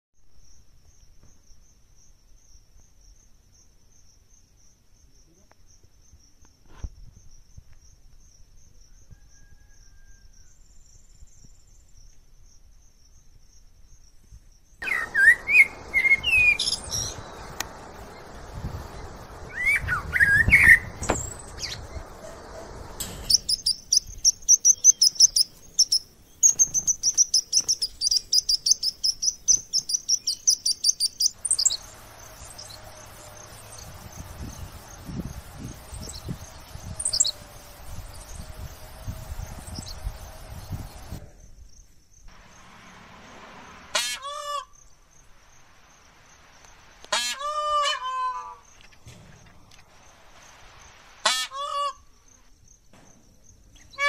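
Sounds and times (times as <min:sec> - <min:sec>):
birds singing: 0:14.8 - 0:41.2
light hiss: 0:14.8 - 0:54.0.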